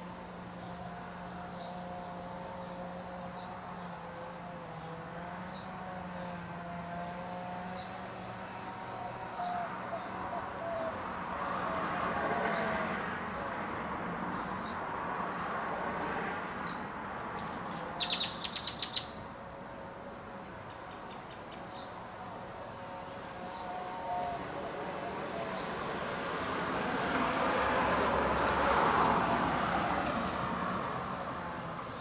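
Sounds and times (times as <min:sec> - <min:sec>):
bird chirping: 0:17.4 - 0:19.3
broad rush of noise: 0:19.1 - 0:32.0.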